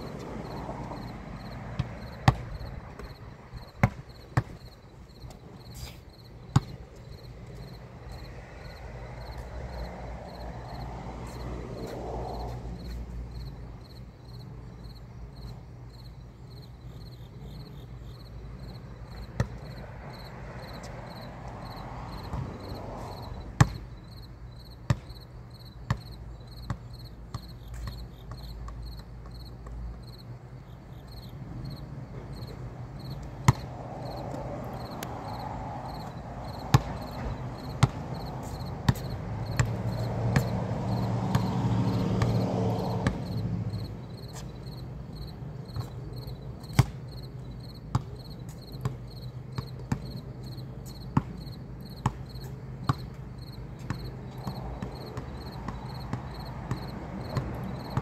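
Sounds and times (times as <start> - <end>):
basketball bouncing on concrete: 0.0 - 5.6, 6.4 - 12.6, 19.2 - 23.9, 24.7 - 30.2, 32.1 - 58.0
faint insect trill: 13.3 - 22.4, 24.0 - 42.0, 43.2 - 58.0.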